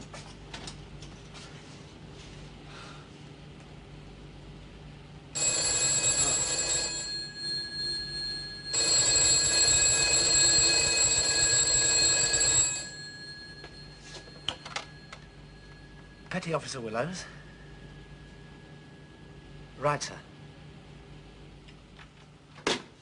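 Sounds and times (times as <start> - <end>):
telephone bell ringing: 5.4 - 16.3.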